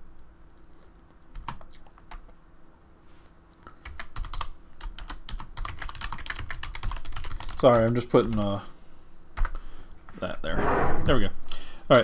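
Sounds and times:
typing on keyboard: 1.3 - 2.2, 3.6 - 8.4.

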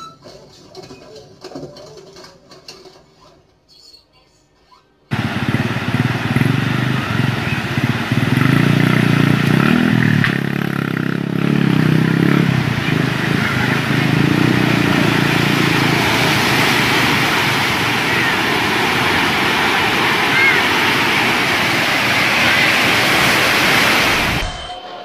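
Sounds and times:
motorcycle engine running: 5.1 - 24.6
floodwater roaring: 5.1 - 24.8.

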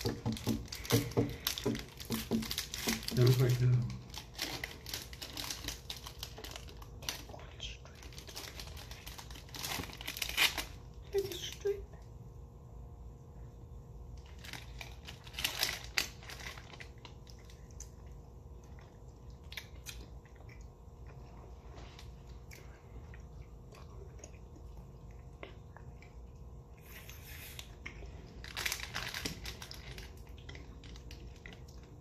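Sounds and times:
people chewing: 0.0 - 9.0, 16.6 - 32.0.

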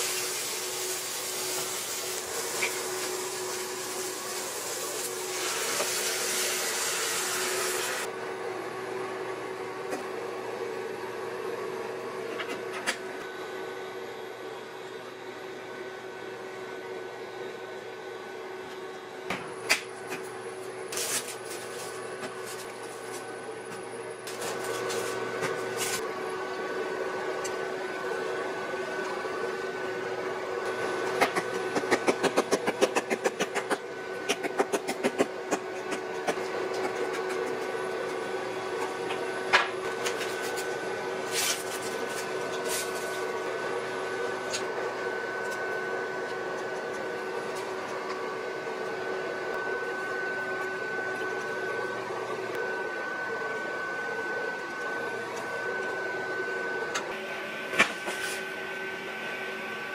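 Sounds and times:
steady appliance hum: 0.0 - 59.9.

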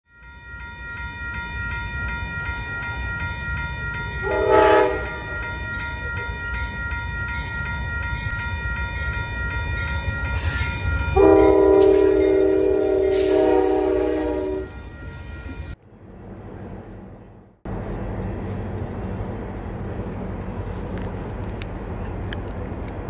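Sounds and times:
diesel locomotive engine rumbling: 0.1 - 23.0
train horn blast: 4.2 - 5.3, 11.2 - 14.8.

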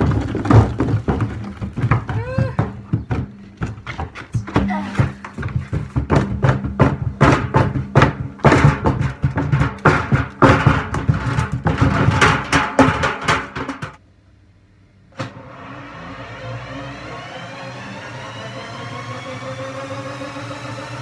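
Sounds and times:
mallet banging inside washing drum: 4.5 - 14.0
steady whir: 15.2 - 21.0.

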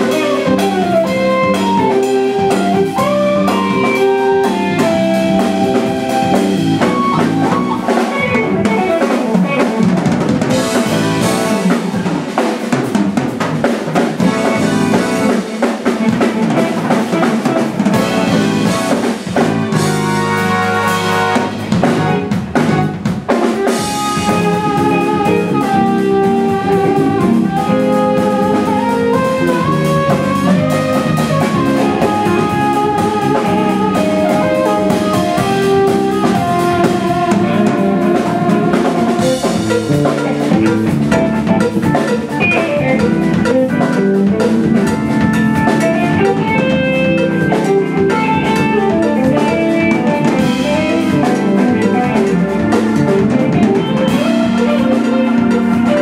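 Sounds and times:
synthesizer lead line: 0.0 - 9.1, 23.7 - 56.0
drum kit: 0.0 - 56.0
electric bass: 0.0 - 56.0
electric guitar: 0.0 - 56.0.

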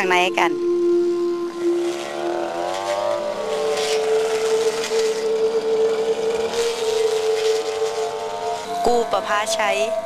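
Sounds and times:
brush cutter engine whining: 1.0 - 10.0
brush cutter cutting grass: 1.5 - 9.3.

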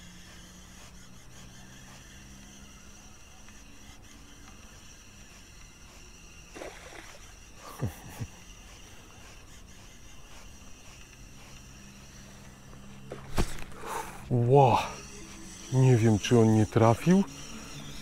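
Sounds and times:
fishing reel cranking: 14.4 - 18.0.

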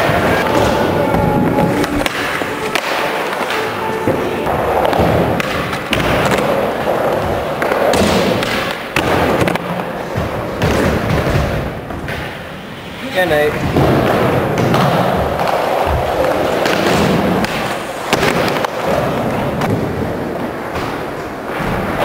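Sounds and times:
skateboard wheels rolling on concrete: 0.0 - 22.0
skateboard clacks and thuds: 4.1 - 12.5, 13.5 - 22.0.

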